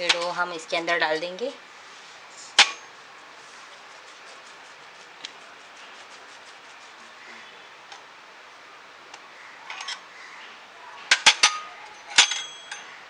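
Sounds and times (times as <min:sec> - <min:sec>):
steady background hiss: 0:00.0 - 0:13.0
ringing metal clink: 0:11.1 - 0:12.9.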